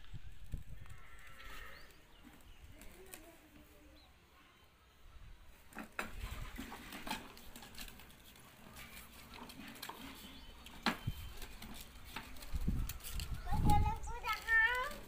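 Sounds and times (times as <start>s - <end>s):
plastic tricycle rattling on concrete: 5.6s - 15.0s.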